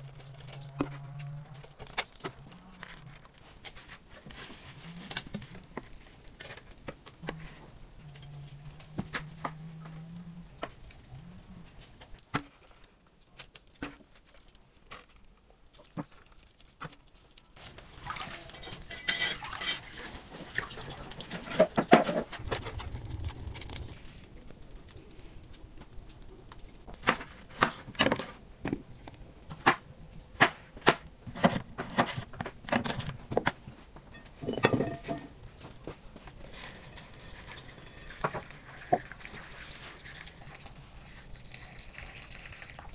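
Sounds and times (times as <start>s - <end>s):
rustling: 0.0s - 29.8s
dishes and utensils clinking: 18.3s - 20.1s, 34.1s - 35.4s.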